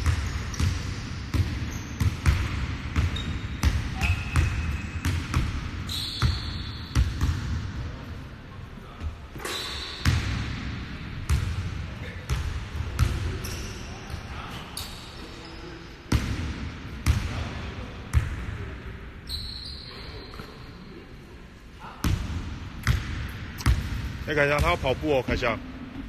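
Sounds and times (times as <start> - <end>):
sneaker squeaks: 1.4 - 2.4, 3.0 - 7.3, 9.3 - 10.2, 13.0 - 15.9, 19.2 - 20.8.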